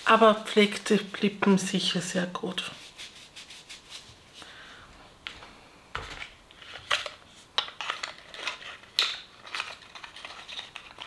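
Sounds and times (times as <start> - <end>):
clicks and scrapes of packaging: 6.1 - 11.0.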